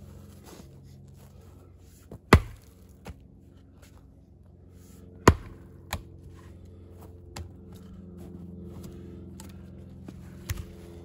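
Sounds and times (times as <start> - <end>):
low engine hum: 0.0 - 11.0
axe striking wood: 2.3 - 2.8, 5.2 - 6.0.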